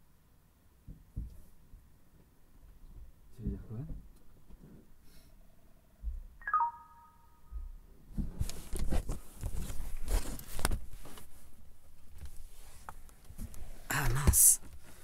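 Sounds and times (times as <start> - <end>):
short electronic beep: 6.4 - 7.5.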